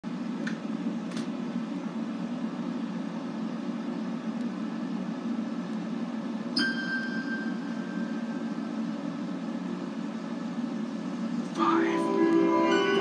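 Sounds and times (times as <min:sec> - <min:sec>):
bright ringing chime tone: 0:06.6 - 0:08.4
low hum: 0:11.0 - 0:13.0.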